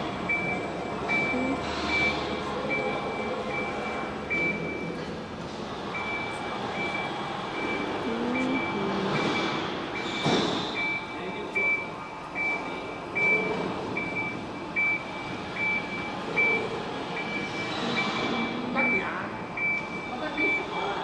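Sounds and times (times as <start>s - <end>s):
short beeps: 0.3s - 5.0s, 6.0s - 20.8s
steady machine noise: 14.0s - 19.7s.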